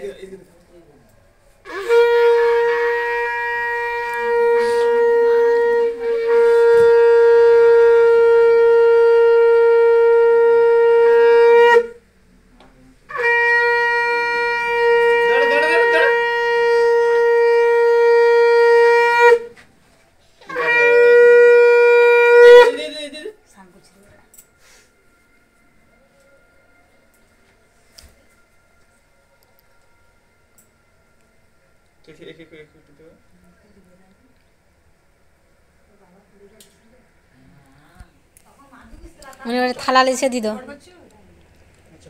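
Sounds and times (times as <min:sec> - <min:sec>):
conch shell blasts: 0:01.6 - 0:12.0, 0:13.1 - 0:19.5, 0:20.4 - 0:22.9.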